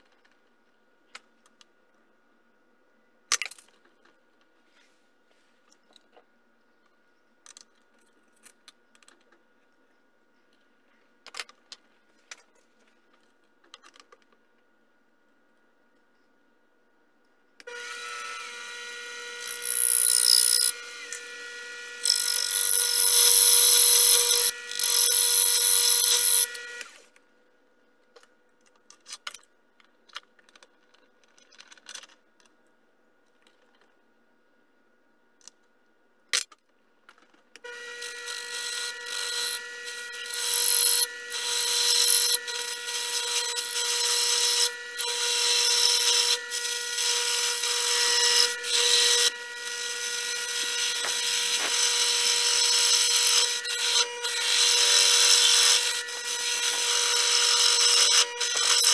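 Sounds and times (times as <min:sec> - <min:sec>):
lathe motor whine: 0:17.7 - 0:27.0, 0:37.7 - 0:58.9
lathe tool cutting metal: 0:17.7 - 0:27.0, 0:37.7 - 0:58.9.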